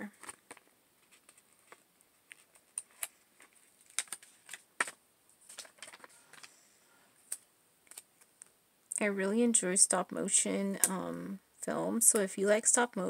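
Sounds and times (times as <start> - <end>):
paper rustling: 0.0 - 6.6
paper clicks: 0.2 - 6.5.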